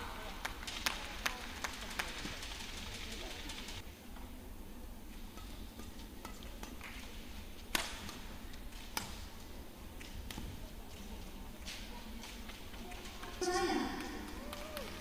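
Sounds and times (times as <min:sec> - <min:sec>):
arena background noise: 0:00.0 - 0:15.0
rackets hitting shuttlecock: 0:07.7 - 0:09.3.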